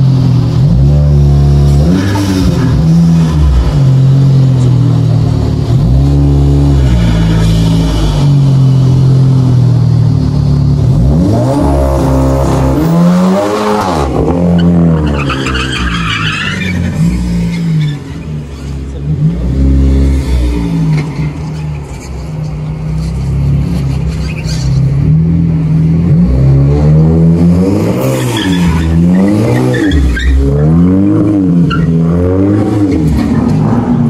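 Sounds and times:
car engine at high revs: 0.0s - 15.9s, 16.7s - 34.0s
tyres squealing: 14.5s - 18.8s.

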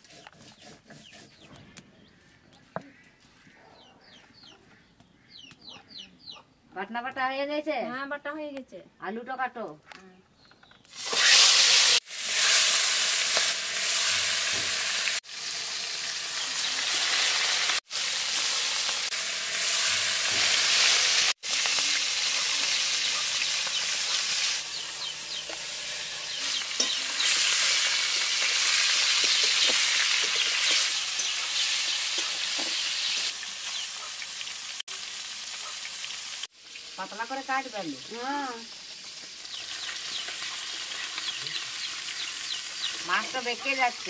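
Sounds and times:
spatula scrapes: 0.0s - 1.6s
fish sizzling in hot oil: 10.9s - 44.0s.

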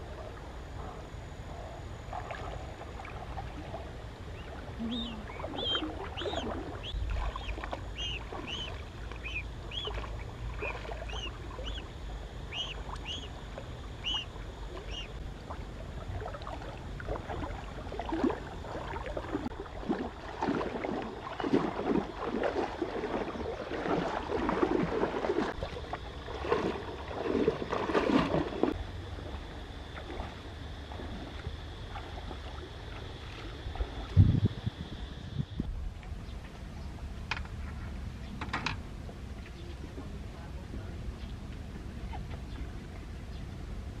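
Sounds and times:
water splashing: 2.1s - 29.3s
chick peeping: 4.8s - 10.0s, 11.1s - 11.8s, 12.5s - 13.3s, 14.0s - 15.1s.

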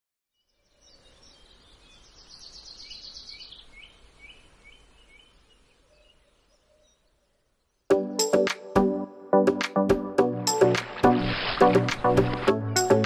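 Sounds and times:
faint birdsong: 0.3s - 7.9s.

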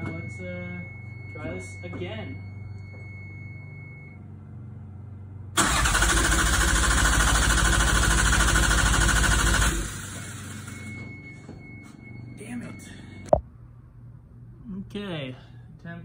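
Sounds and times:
starter cranking engine: 5.6s - 10.2s.

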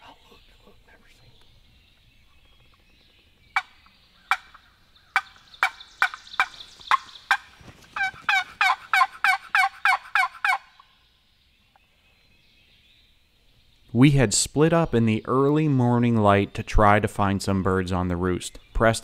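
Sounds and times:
turkey call clucks: 3.6s - 10.9s
turkey call yelps: 8.0s - 10.8s.

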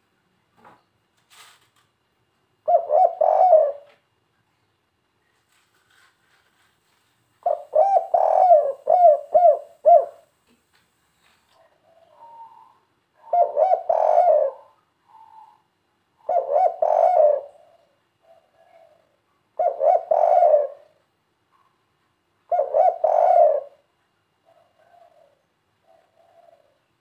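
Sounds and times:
dove cooing: 2.6s - 4.0s, 7.4s - 10.3s, 11.6s - 21.0s, 22.5s - 27.0s.

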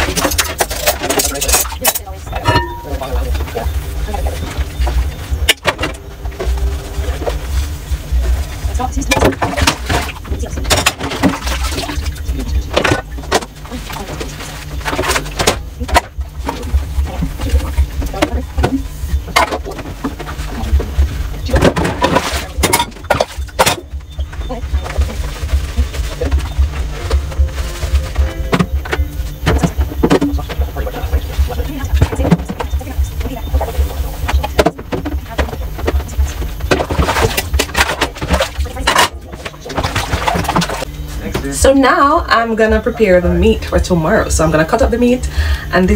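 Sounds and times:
dishes clinking and clattering: 0.0s - 7.5s, 9.0s - 23.9s
low regular pulsing: 0.0s - 45.9s
steady low rumble: 0.0s - 45.9s.

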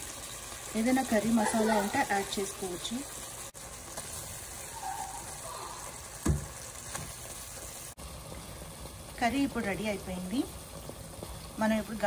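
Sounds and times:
curry simmering in pot: 0.0s - 12.0s
dull thump: 6.2s - 7.1s.

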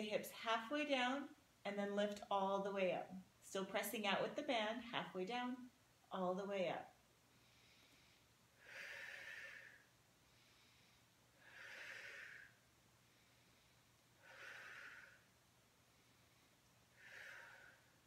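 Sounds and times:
woman breathing: 7.2s - 18.0s.

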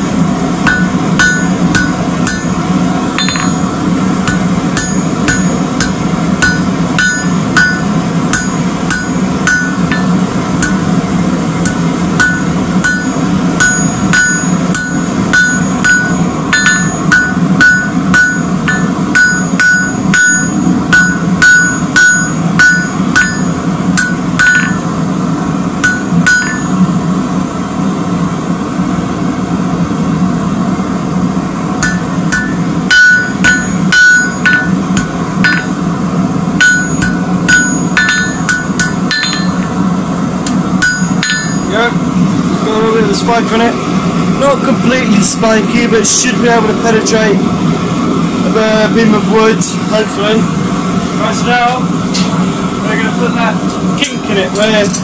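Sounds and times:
hammer striking metal on anvil: 0.6s - 11.0s, 11.6s - 25.0s, 25.8s - 26.9s, 31.8s - 35.9s, 36.6s - 41.8s.

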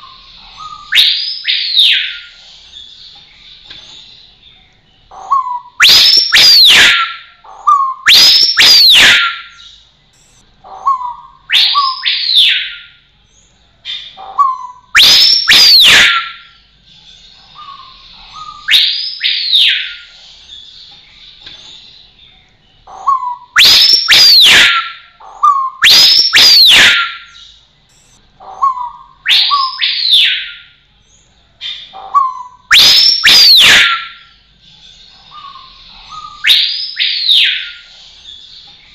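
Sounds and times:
bird singing whistled phrases: 0.0s - 2.4s, 5.3s - 13.0s, 13.9s - 16.6s, 17.6s - 20.1s, 23.0s - 30.8s, 31.6s - 34.4s, 35.3s - 37.9s.

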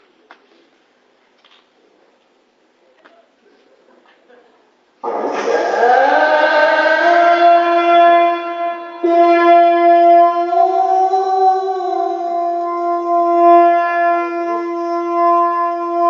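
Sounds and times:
man reciting melodically: 5.0s - 16.0s.

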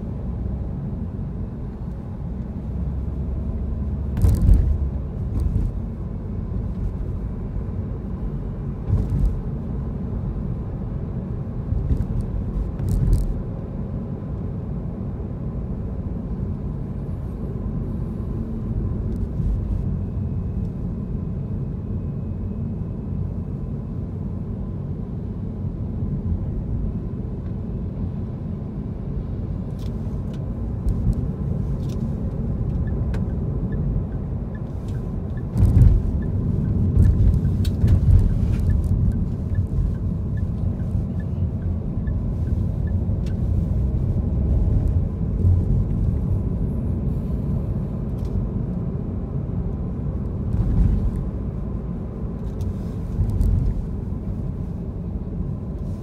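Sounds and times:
car engine and road rumble: 0.0s - 56.0s
turn signal ticking: 30.3s - 46.0s.

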